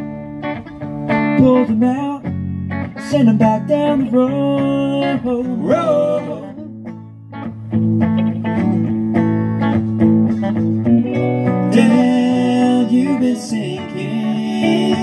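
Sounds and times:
electric guitar picking: 0.0 - 15.0
upright bass line: 0.0 - 15.0.

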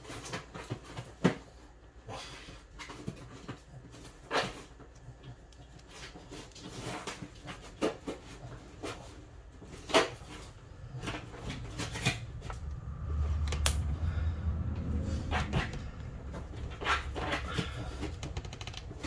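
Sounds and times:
low rumble: 10.3 - 19.0.

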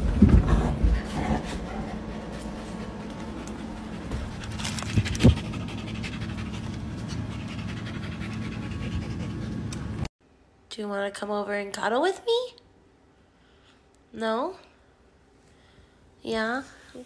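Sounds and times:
pet breathing fast: 1.0 - 9.7.

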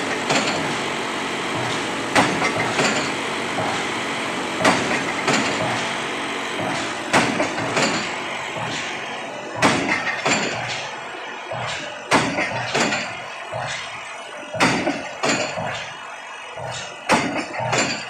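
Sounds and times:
rig engine running: 0.0 - 18.0
pile hammer heavy blows: 1.6 - 3.8, 4.6 - 9.0, 9.6 - 10.9, 11.5 - 13.8, 14.5 - 15.9, 16.6 - 18.0.

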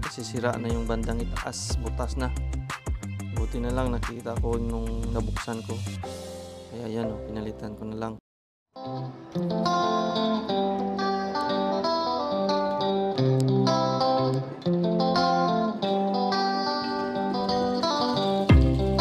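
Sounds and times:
plucked guitar melody: 8.8 - 19.0.

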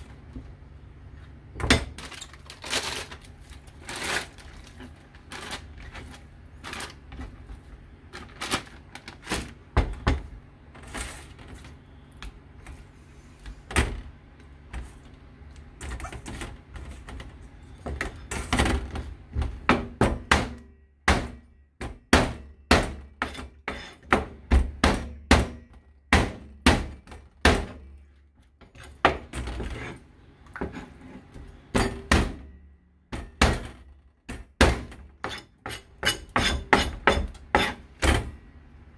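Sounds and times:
knife chopping on a cutting board: 34.6 - 37.8.

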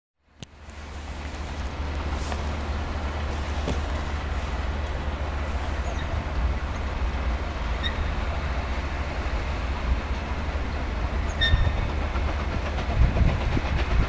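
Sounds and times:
distant steam train rumble: 0.3 - 14.0
wind buffeting microphone: 9.5 - 14.0.

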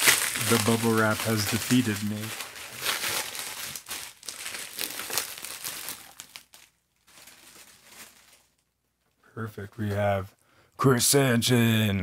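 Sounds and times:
bubble wrap crinkling: 0.0 - 8.8.

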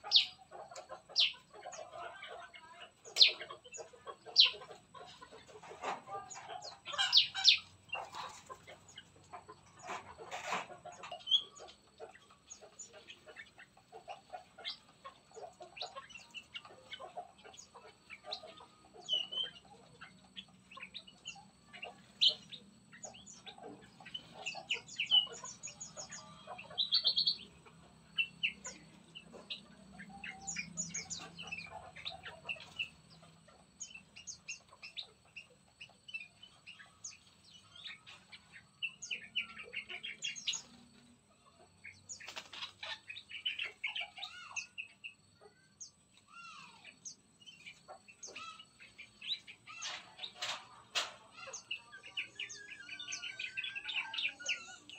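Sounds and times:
songbirds chirping and calling: 0.0 - 54.9
loud rapid bird trill: 6.9 - 8.2, 41.8 - 45.7, 46.3 - 54.9.

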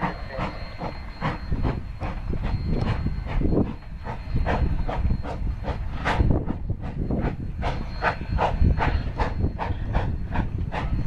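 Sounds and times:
steam locomotive chuffing: 0.0 - 11.0.

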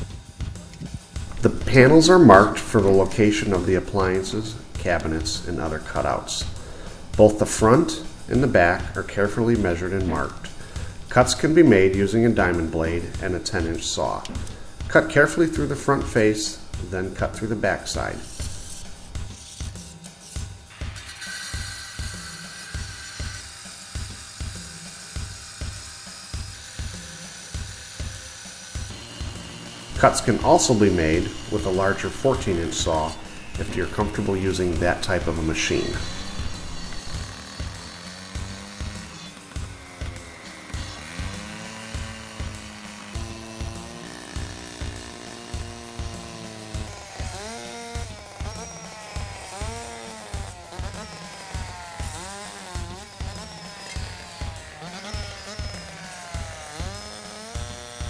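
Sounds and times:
music with steady beat: 0.0 - 5.5
background music with steady beat: 0.0 - 58.0
circular saw cutting concrete: 0.0 - 58.0.

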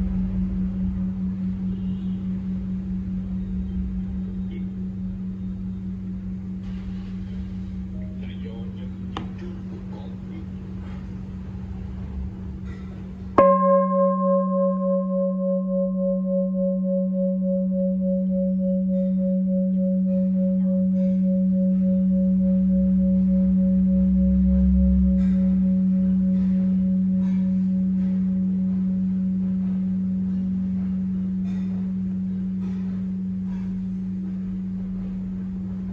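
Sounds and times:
bowl bell ringing: 12.6 - 35.9.

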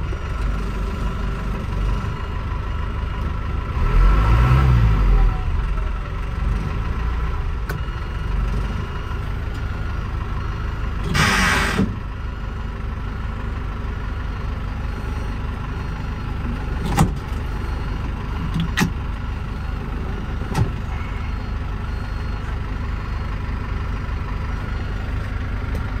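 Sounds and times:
diesel truck engine idling: 0.0 - 26.0
short air hiss: 11.1 - 11.9.

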